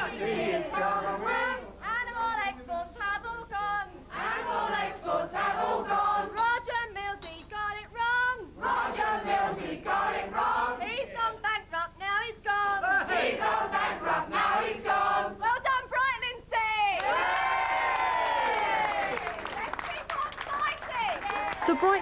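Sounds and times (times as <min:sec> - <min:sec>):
group of voices singing: 0:00.0 - 0:07.2, 0:08.0 - 0:11.6, 0:12.5 - 0:15.4.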